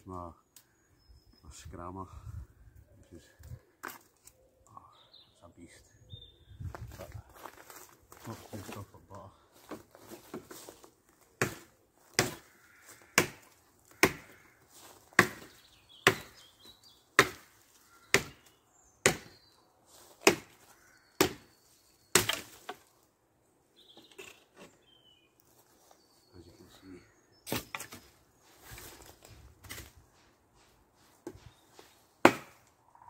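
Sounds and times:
knife chopping into branch: 11.4s - 12.5s, 13.2s - 14.4s, 15.2s - 16.4s, 17.2s - 17.5s, 18.1s - 19.4s, 20.2s - 20.6s, 21.2s - 21.4s, 22.1s - 22.8s, 27.4s - 28.1s, 32.2s - 32.7s.

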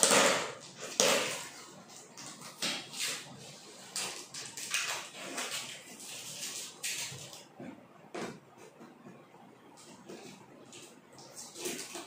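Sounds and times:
packaging scraping and rustling: 2.3s - 7.4s.

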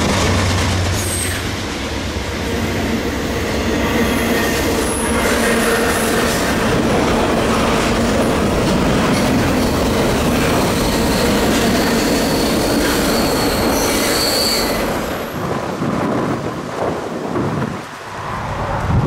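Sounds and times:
train wheels rumbling on rail: 0.0s - 19.0s
wheel squeal: 10.6s - 15.0s.

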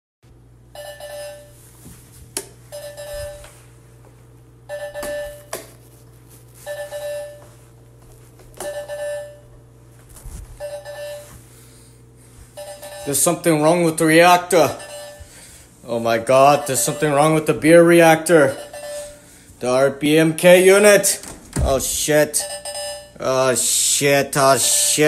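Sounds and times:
low electrical hum: 0.3s - 25.0s
electronic alarm ringing tone: 0.7s - 1.6s, 2.7s - 3.6s, 4.7s - 5.5s, 6.6s - 7.6s, 8.6s - 9.5s, 10.6s - 11.4s, 12.6s - 15.4s, 16.3s - 19.3s, 22.1s - 23.2s.

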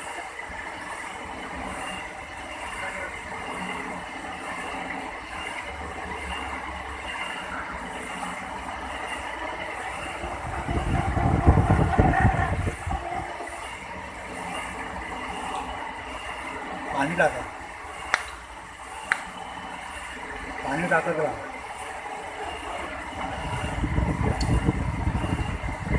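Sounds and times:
lathe drilling workpiece: 0.0s - 25.9s
rough rumble: 10.3s - 13.5s.

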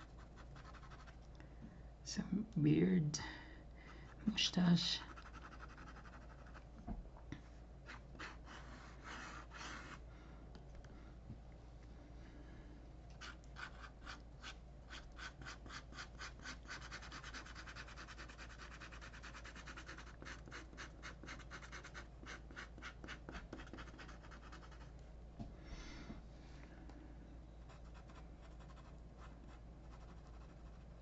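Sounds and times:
marker scratching on paper: 0.0s - 1.1s, 5.0s - 6.6s, 7.9s - 10.0s, 13.2s - 24.9s.

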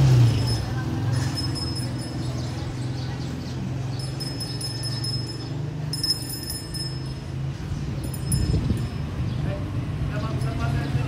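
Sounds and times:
small metal bells jingling: 0.1s - 9.4s.

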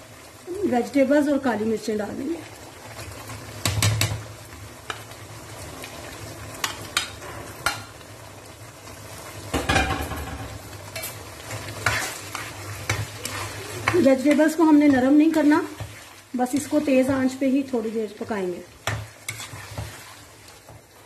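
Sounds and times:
food sizzling in a wok: 0.0s - 21.0s
spatula stirring vegetables: 0.0s - 21.0s
spatula tapping a pan: 3.6s - 4.2s, 6.6s - 7.9s, 9.5s - 11.1s, 18.8s - 20.0s.

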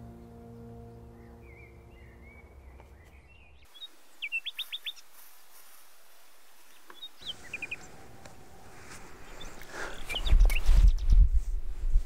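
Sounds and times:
faint open-air ambience: 0.0s - 12.0s
small bird calling: 1.2s - 5.1s.

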